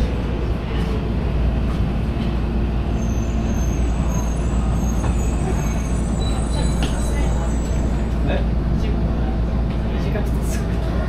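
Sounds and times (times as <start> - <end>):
subway train rumbling: 0.0 - 11.0
high brake squeals: 3.0 - 8.1.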